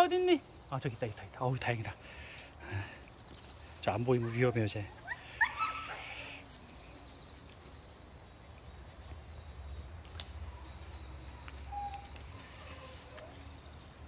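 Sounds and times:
rising pitched call: 0:04.2 - 0:06.4, 0:11.6 - 0:13.4.

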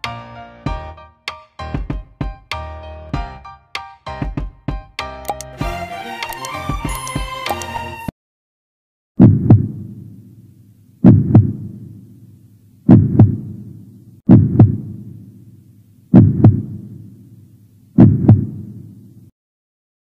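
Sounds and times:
heartbeat double thumps: 0:09.2 - 0:09.8, 0:11.0 - 0:11.7, 0:12.9 - 0:13.5, 0:14.3 - 0:14.9, 0:16.1 - 0:16.8, 0:18.0 - 0:18.6.

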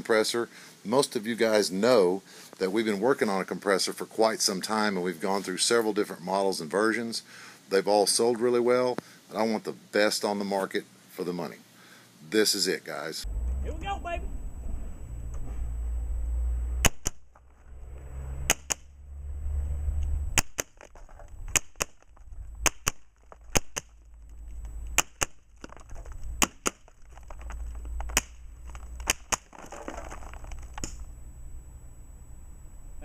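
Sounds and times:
pellets smashing clay targets: 0:20.4 - 0:24.3, 0:24.9 - 0:31.0.

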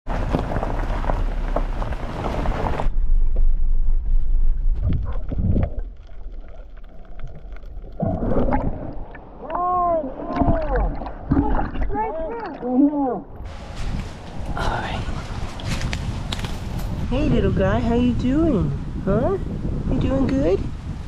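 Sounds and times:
tyres crunching over gravel: 0:00.1 - 0:02.9
wind noise: 0:00.1 - 0:12.3, 0:13.3 - 0:21.0.

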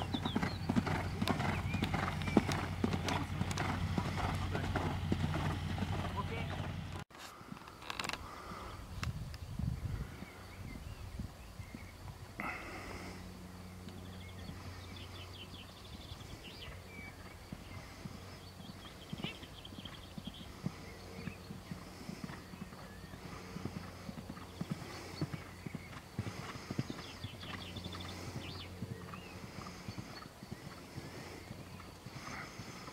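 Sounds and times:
horse hoofbeats cantering: 0:00.0 - 0:07.0, 0:16.6 - 0:32.9.

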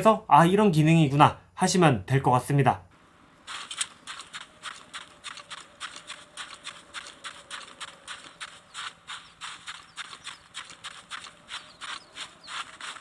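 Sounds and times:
video game footsteps on sand: 0:03.0 - 0:13.0.

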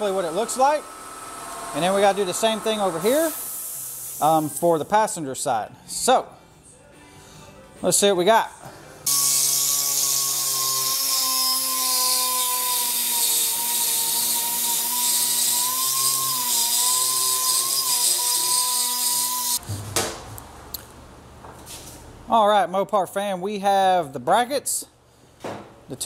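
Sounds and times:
hiss: 0:03.2 - 0:04.6.

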